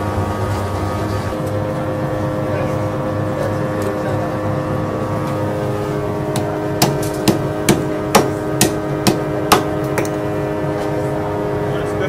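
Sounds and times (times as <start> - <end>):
steady background hum: 0.0 - 12.0
cleaver chopping on wooden block: 6.4 - 10.1.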